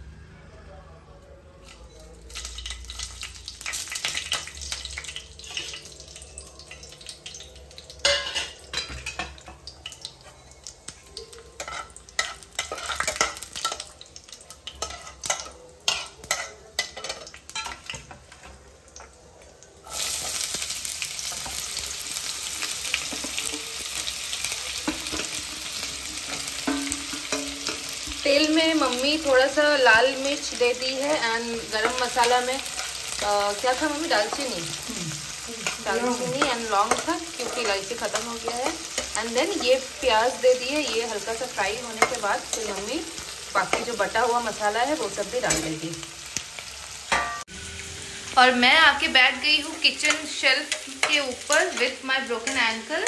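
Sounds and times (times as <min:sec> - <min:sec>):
onions sizzling in oil: 0:01.6 - 0:53.0
spices crackling in hot oil: 0:01.6 - 0:53.0
metal spatula scraping: 0:11.6 - 0:13.8.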